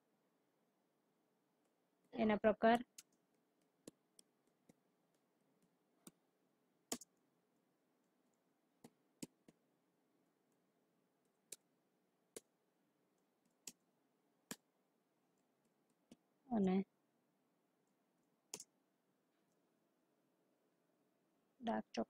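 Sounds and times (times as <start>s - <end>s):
computer keys clicking: 2.7s - 6.2s, 6.9s - 7.2s.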